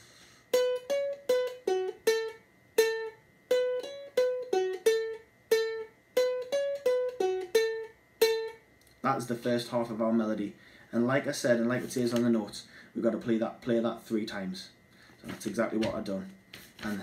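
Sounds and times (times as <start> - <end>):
ukulele single-note melody: 0.5 - 10.1.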